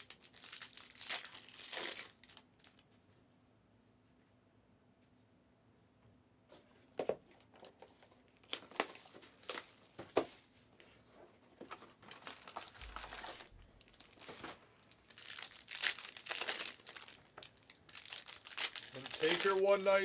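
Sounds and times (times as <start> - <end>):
plastic wrapping crinkling and tearing: 0.0 - 2.9, 7.6 - 10.3, 11.7 - 20.0.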